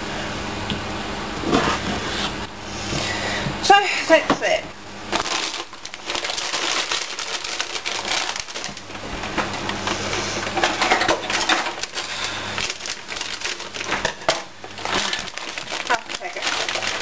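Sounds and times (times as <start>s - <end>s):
dried pasta rattling: 5.1s - 17.0s
plastic packet crinkling: 5.1s - 17.0s.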